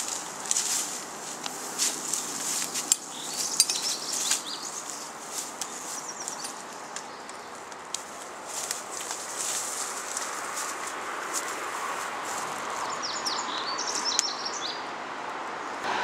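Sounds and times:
gear clicking and clinking: 0:00.0 - 0:08.1
footsteps rustling through grass: 0:00.0 - 0:14.2.

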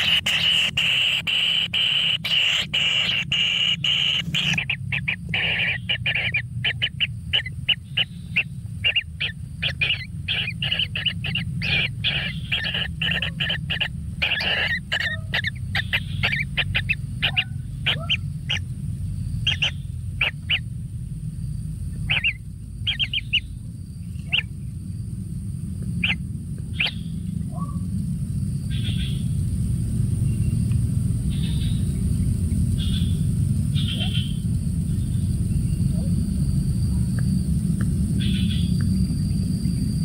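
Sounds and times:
bird chick chirping: 0:00.0 - 0:18.7, 0:19.4 - 0:20.7, 0:22.0 - 0:24.6, 0:26.0 - 0:27.7, 0:31.3 - 0:36.1
steady low hum: 0:00.0 - 0:40.0.

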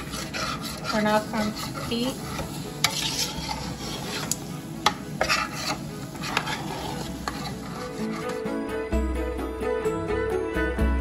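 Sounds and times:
spoon scraping steel pot: 0:00.0 - 0:08.5.

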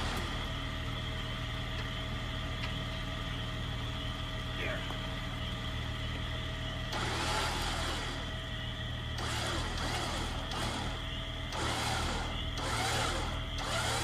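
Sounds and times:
engine idling: 0:00.0 - 0:14.0
winch motor whining: 0:05.3 - 0:14.0.

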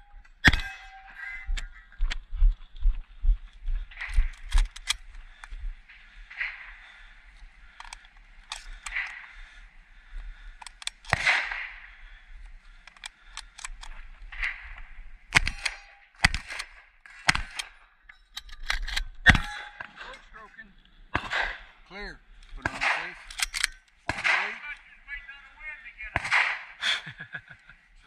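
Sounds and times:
shotgun shots: 0:00.4 - 0:01.2, 0:11.0 - 0:12.0, 0:14.3 - 0:17.8, 0:19.3 - 0:20.1, 0:21.1 - 0:21.8, 0:22.6 - 0:24.9, 0:26.0 - 0:26.8
sharp small clicks: 0:04.0 - 0:05.5, 0:07.7 - 0:09.2, 0:10.6 - 0:11.7, 0:12.7 - 0:14.7, 0:15.3 - 0:19.4.

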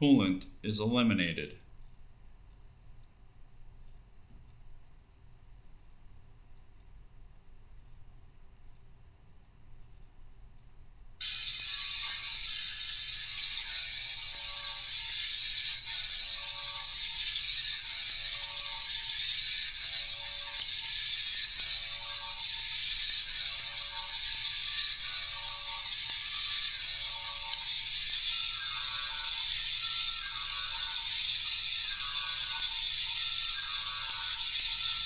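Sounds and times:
milling machine high-pitched whine: 0:11.2 - 0:35.0.

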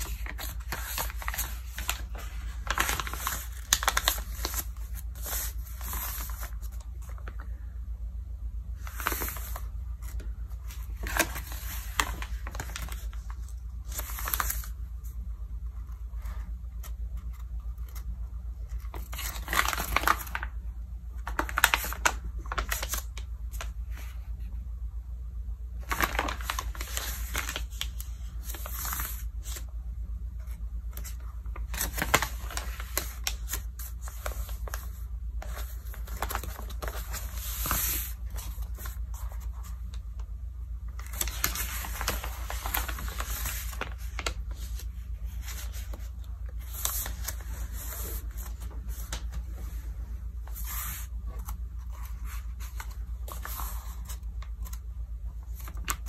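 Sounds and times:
page turning: 0:00.0 - 0:07.4, 0:08.8 - 0:15.1, 0:25.8 - 0:29.7, 0:30.4 - 0:40.1, 0:40.9 - 0:56.0
magazine pages rustling: 0:00.0 - 0:07.6, 0:08.8 - 0:20.6, 0:21.2 - 0:24.3, 0:25.8 - 0:29.7, 0:30.4 - 0:56.0.

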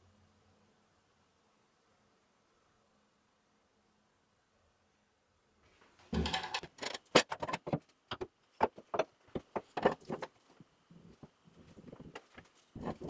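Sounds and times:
wooden parts knocking and clicking: 0:06.2 - 0:10.4.

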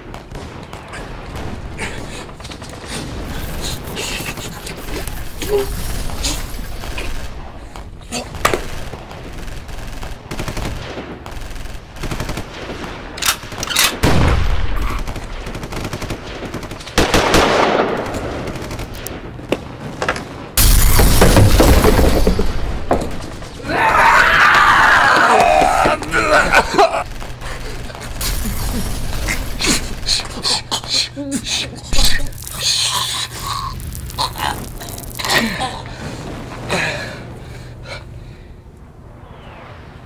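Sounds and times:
gunshots: 0:00.0 - 0:23.7, 0:26.1 - 0:31.1.

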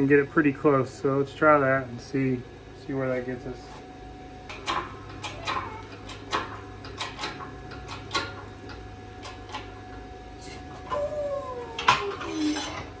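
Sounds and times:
whining tone falling in pitch: 0:10.4 - 0:12.2.

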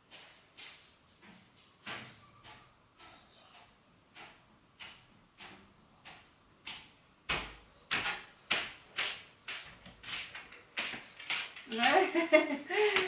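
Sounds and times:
footsteps walking: 0:07.9 - 0:13.0.

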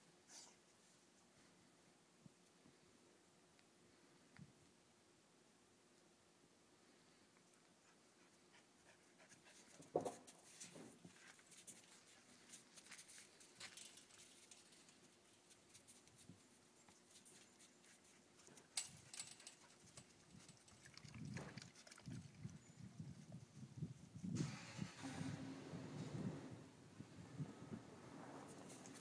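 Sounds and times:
chain-link fence rattling: 0:13.4 - 0:15.0, 0:18.7 - 0:21.2.

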